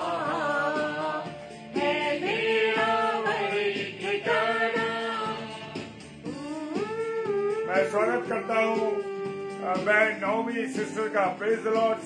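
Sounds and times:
man and woman singing a hymn: 0.0s - 5.7s.

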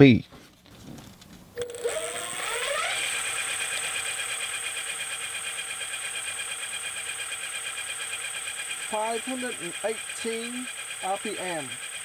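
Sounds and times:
electric motor whine: 1.6s - 12.0s.

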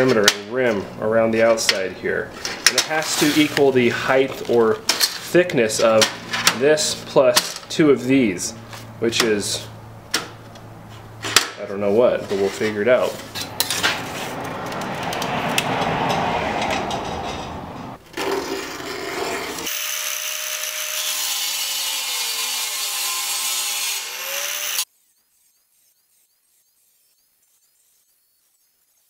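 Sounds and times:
scraping rubbing noise: 0.6s - 7.0s, 10.8s - 19.7s, 24.9s - 29.0s
angle grinder cutting steel: 18.2s - 29.0s.

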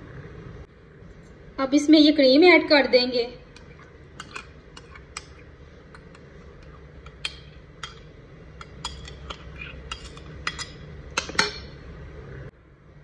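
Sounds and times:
spoon scraping a bowl: 3.5s - 11.8s.

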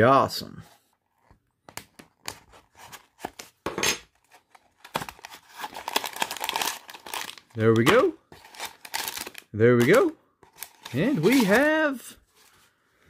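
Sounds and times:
wrapper crinkling: 4.7s - 12.0s
blade slitting foil wrapper: 4.9s - 7.5s, 8.4s - 9.4s.

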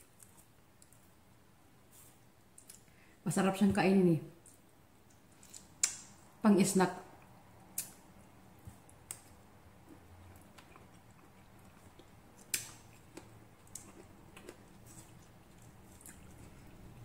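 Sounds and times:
wet chewing clicks: 7.2s - 17.0s.

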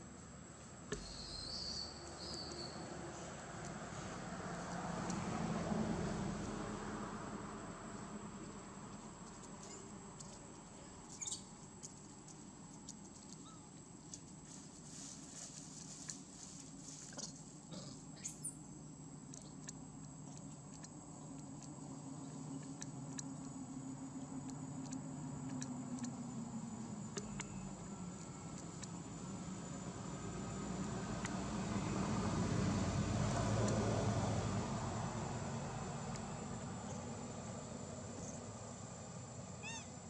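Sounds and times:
low steady hum: 0.0s - 40.0s
dry leaves crackling: 14.4s - 17.4s.

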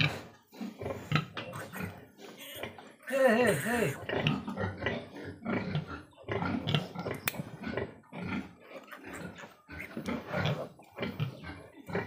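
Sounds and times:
piglet squealing and grunting: 1.4s - 4.6s.

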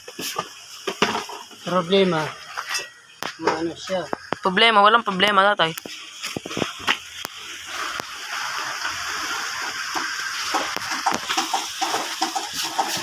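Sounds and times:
water running: 0.0s - 13.0s.

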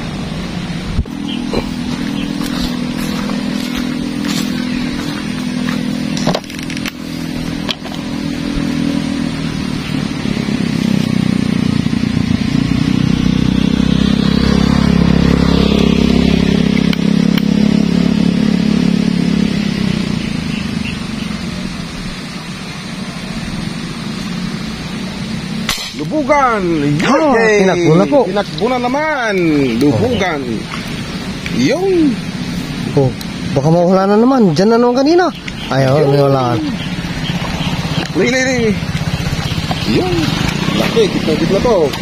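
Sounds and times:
small engine running: 0.0s - 42.0s.

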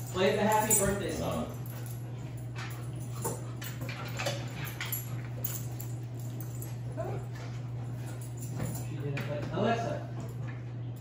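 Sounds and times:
low hum: 0.0s - 11.0s
dog whimpering: 7.0s - 7.3s.

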